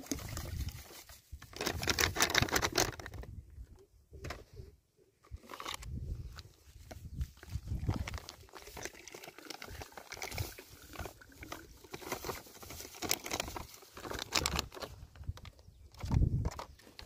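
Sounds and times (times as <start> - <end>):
powder pouring into water: 7.8 - 14.3.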